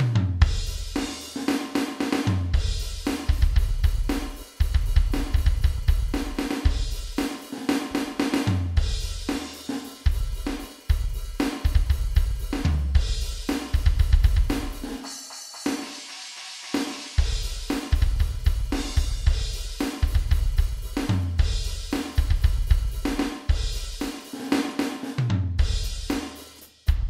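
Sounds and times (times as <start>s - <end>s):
electronic drum kit groove: 0.0s - 27.0s
cymbal crashes: 14.5s - 20.2s.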